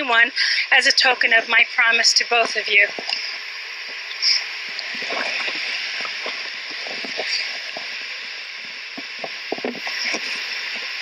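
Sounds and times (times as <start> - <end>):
waterfall rushing: 4.0 - 11.0.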